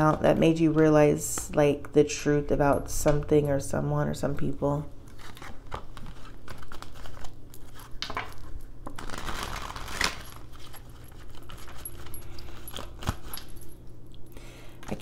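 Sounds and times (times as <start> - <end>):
cards being shuffled: 5.1 - 13.4.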